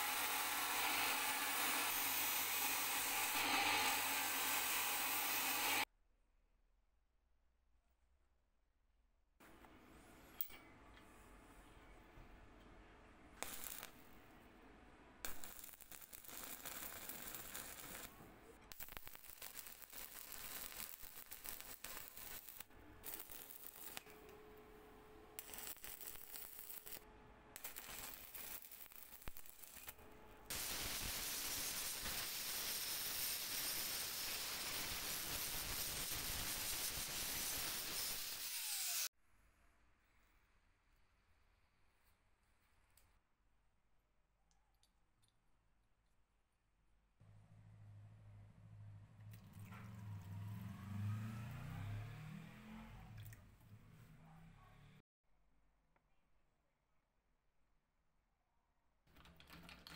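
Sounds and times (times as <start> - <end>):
angle grinder grinding: 0.0 - 5.8, 30.6 - 39.1
welding arc sizzling: 0.0 - 5.8, 13.4 - 14.2, 15.3 - 24.2, 25.4 - 27.0, 27.6 - 39.1.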